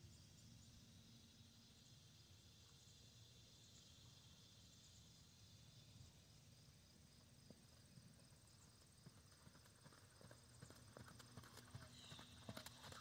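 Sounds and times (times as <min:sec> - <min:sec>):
crickets trilling: 0:03.0 - 0:13.0.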